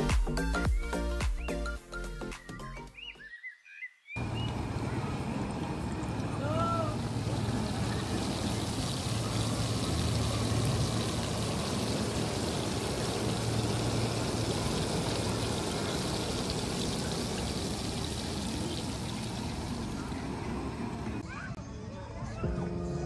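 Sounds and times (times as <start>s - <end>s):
hot oil sizzling and bubbling: 4.2s - 21.2s.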